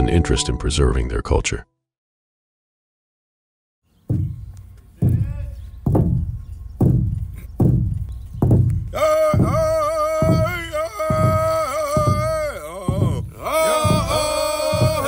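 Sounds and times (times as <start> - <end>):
big drum deep booms: 4.1 - 15.0
man singing high voice: 8.9 - 15.0.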